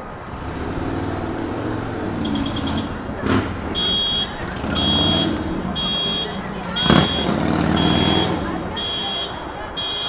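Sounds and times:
electronic alarm beeping: 3.7s - 10.0s.

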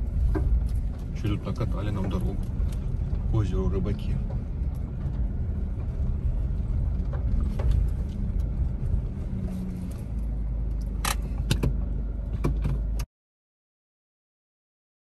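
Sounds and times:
car cabin rumble: 0.0s - 13.1s
knocks and rattles: 0.2s - 9.0s.

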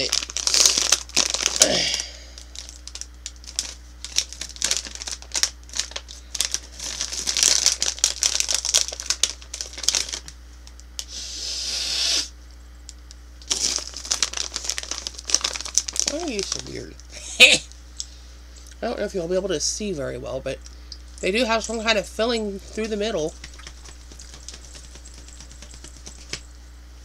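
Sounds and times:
plastic candy bag crinkling: 0.0s - 11.1s, 13.4s - 17.0s, 21.2s - 26.5s.

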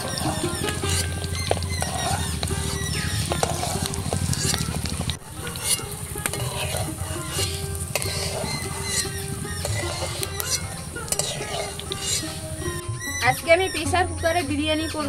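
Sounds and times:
hot oil sizzling: 0.0s - 13.1s
metal spatula scraping pan: 0.0s - 13.5s.

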